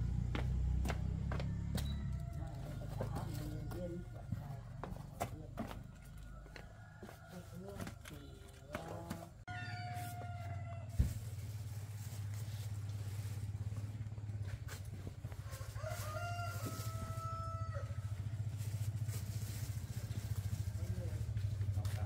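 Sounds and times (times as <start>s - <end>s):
rooster crowing: 1.3s - 3.4s, 6.1s - 8.2s, 9.5s - 11.1s, 15.4s - 18.1s
small engine running: 18.1s - 22.0s.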